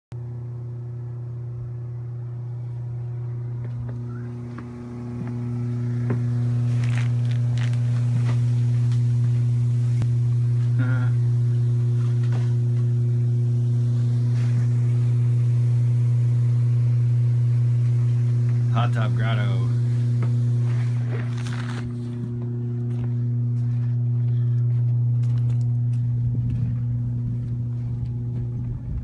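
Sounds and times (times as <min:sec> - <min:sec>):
pump motor humming: 0:00.2 - 0:29.0.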